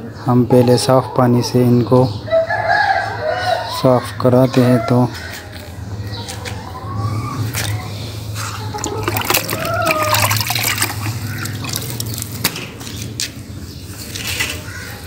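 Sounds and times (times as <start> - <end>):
water splashing and dripping: 8.7 - 12.5.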